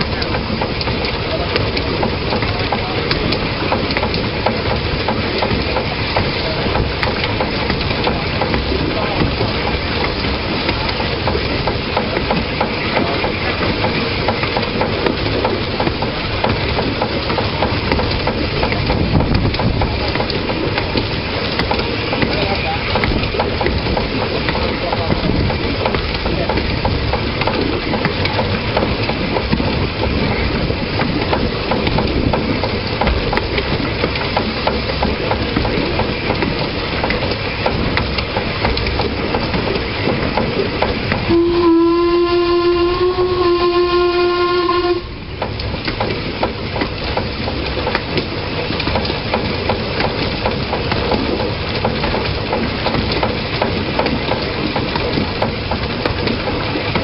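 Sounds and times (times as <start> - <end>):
faint regular clicks: 0.0 - 30.2, 31.0 - 41.3
steam locomotive running: 0.0 - 57.0
steam whistle: 41.3 - 45.3.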